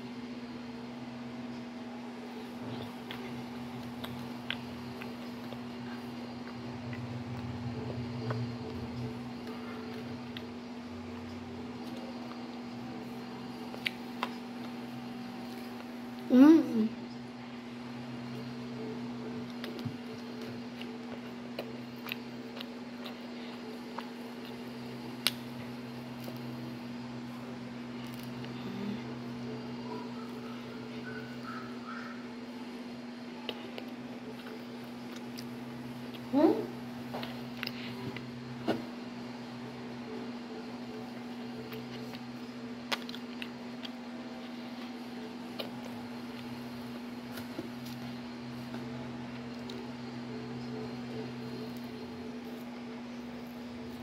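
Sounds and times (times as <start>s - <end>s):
steady low hum: 0.0s - 54.0s
person chewing: 2.3s - 16.3s, 18.2s - 26.8s, 27.9s - 32.3s, 33.3s - 38.4s, 40.8s - 54.0s
mouth clicks and smacks chewing: 41.6s - 44.0s.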